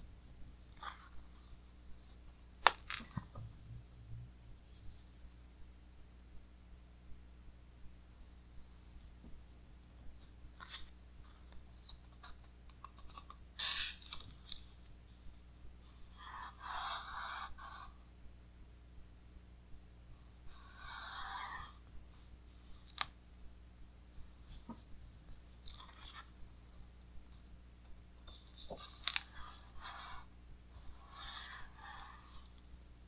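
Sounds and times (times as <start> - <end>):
book pages turning: 28.4 - 29.9.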